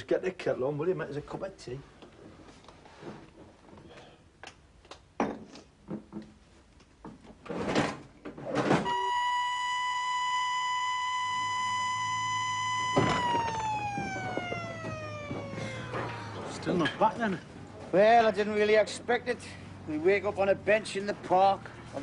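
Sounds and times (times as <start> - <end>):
siren winding down: 8.8 - 16.7
knocks and clatter: 12.9 - 17.0.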